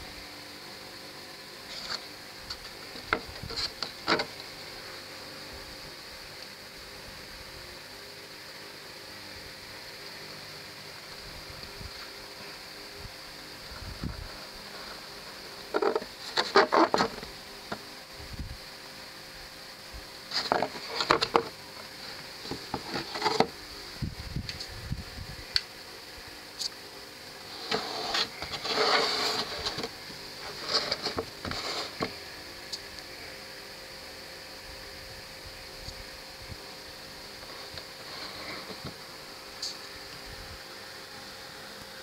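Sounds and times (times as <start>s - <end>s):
steady hiss: 0.0s - 42.0s
cardboard box scraping and rustling: 1.7s - 2.1s, 3.0s - 4.4s, 14.0s - 17.3s, 20.3s - 23.6s, 27.4s - 32.2s, 37.4s - 39.0s.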